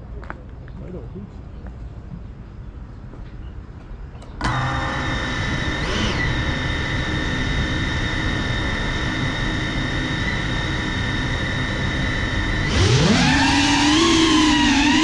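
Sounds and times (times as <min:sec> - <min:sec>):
drone motors whining at idle: 0:04.2 - 0:15.0.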